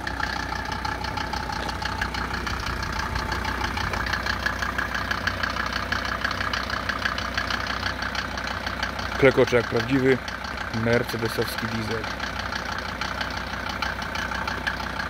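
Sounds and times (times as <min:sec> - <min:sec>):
diesel engine idling clatter: 0:00.0 - 0:15.0.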